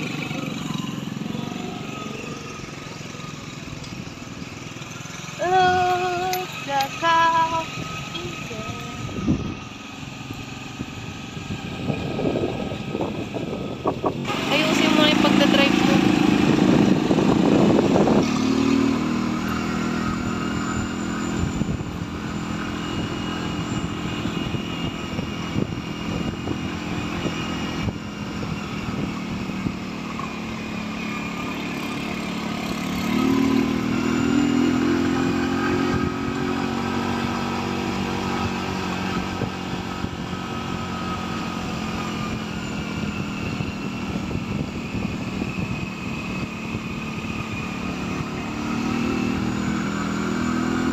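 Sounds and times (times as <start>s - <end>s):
motorcycle engine running: 0.0s - 50.9s.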